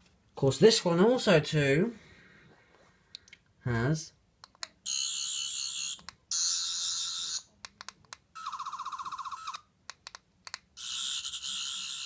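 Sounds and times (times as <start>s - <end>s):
toy electronic buzzing: 4.8s - 7.5s, 10.8s - 12.0s.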